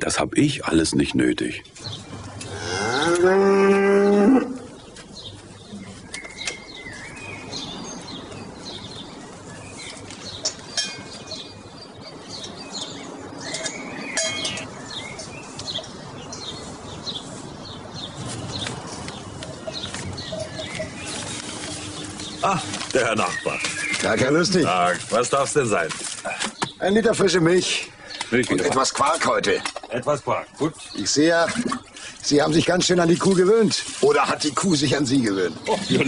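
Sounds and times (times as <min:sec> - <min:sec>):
cow mooing: 0:02.4 - 0:04.7.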